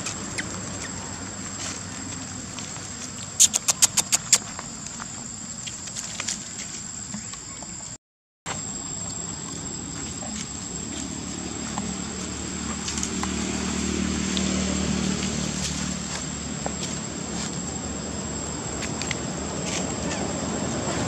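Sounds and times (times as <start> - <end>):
vehicle engine passing: 9.3 - 21.0.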